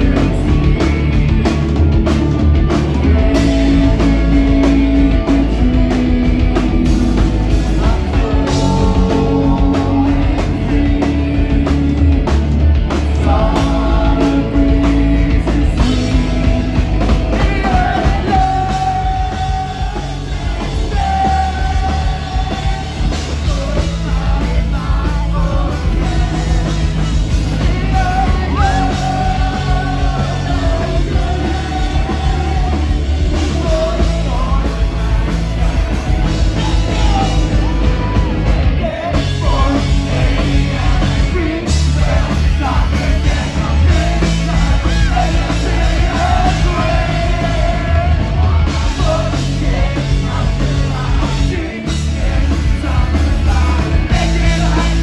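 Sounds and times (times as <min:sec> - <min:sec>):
bass: 0:00.0 - 0:55.0
distorted guitars: 0:00.0 - 0:55.0
drums: 0:00.0 - 0:55.0
person singing and yelling: 0:13.2 - 0:55.0.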